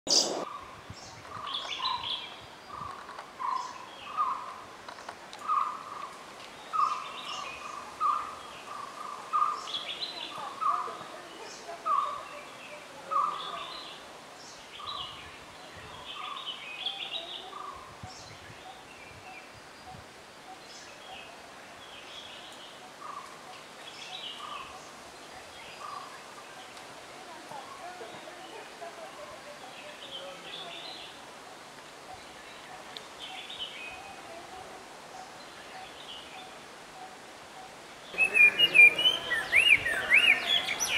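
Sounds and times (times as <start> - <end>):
faint steady hiss: 0.1 - 40.9
high bird chirps: 38.1 - 40.9.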